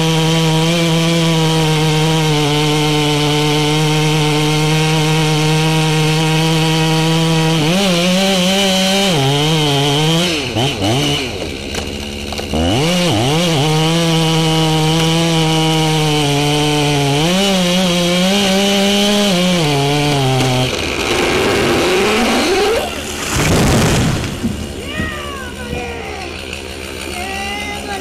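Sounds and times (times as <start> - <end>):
chainsaw cutting tree trunk: 0.0 - 28.0
wood creaking: 8.8 - 17.0, 17.9 - 28.0.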